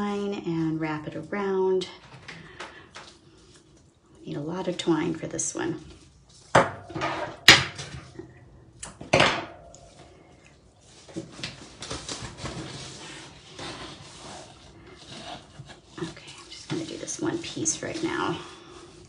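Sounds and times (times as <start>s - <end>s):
paper and twine rustling: 9.8s - 19.0s.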